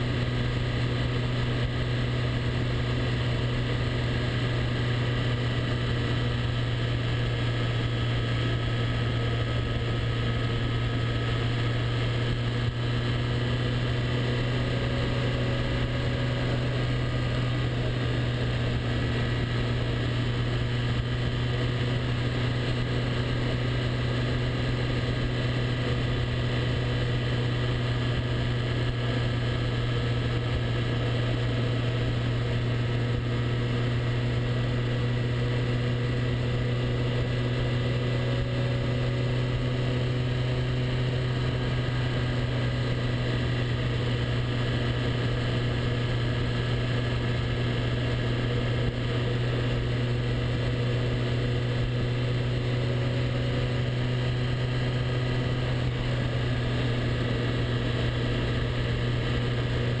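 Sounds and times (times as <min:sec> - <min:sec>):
motorcycle engine cruising: 0:00.0 - 1:00.0
wind and road noise: 0:00.0 - 1:00.0.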